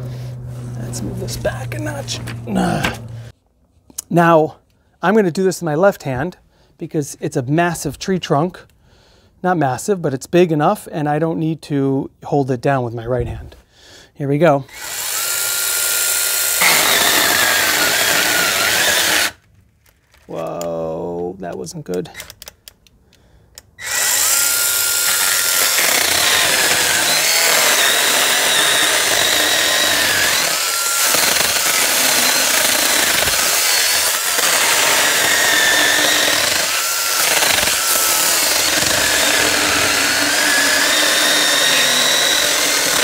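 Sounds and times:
mini chainsaw cutting wood: 14.7 - 19.4, 23.8 - 43.0.

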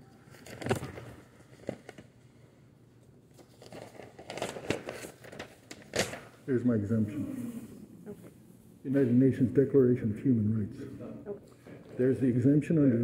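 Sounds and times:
paper rustling and crinkling: 0.2 - 2.4, 3.3 - 6.4.

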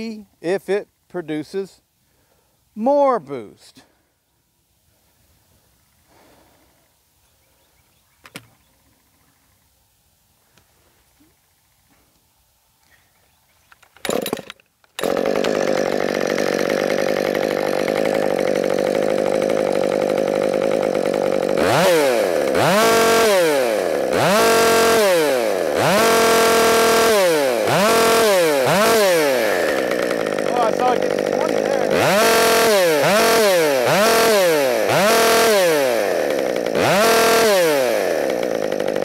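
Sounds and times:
chainsaw starting and revving: 14.0 - 39.0.

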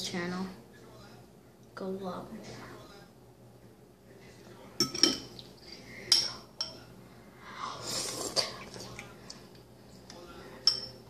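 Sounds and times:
metal fork clinking on ceramic dish: 10.6 - 11.0.

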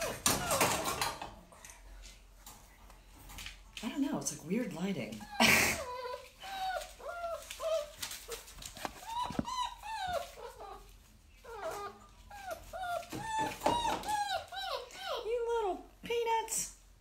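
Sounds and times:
dog whining: 0.0 - 1.2, 5.2 - 15.5.

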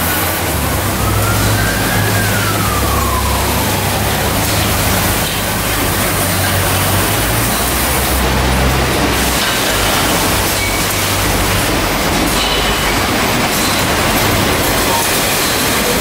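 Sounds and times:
motor whine: 0.0 - 11.9
machinery hum and hiss: 0.0 - 16.0
pallet rolling on roller conveyor: 0.0 - 16.0.

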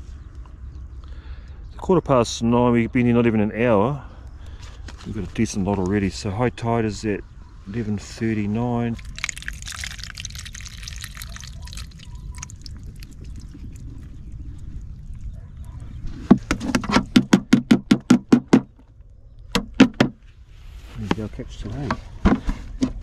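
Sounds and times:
water pouring into a colander: 8.9 - 14.8.

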